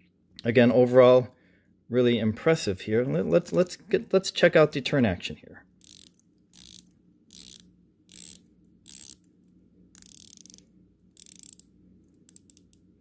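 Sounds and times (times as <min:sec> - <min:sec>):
watch bezel ratcheting clicks: 0:05.8 - 0:09.3, 0:10.0 - 0:11.7, 0:12.3 - 0:12.9.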